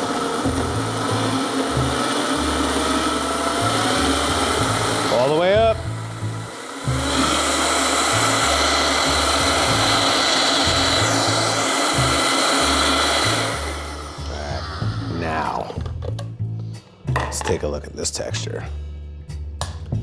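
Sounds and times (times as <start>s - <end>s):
blender running: 0.0s - 15.8s
background music with bass line: 0.0s - 20.0s.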